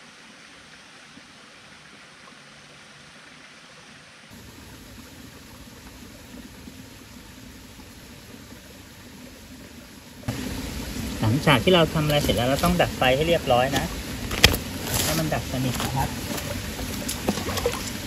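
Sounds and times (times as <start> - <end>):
steady water noise: 0.0 - 18.0.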